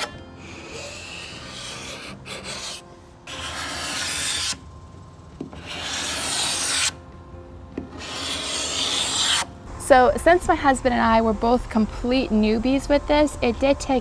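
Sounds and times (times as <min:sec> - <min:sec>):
hand scraper rasping on wood: 0:00.0 - 0:04.6, 0:05.6 - 0:06.9, 0:08.0 - 0:09.5.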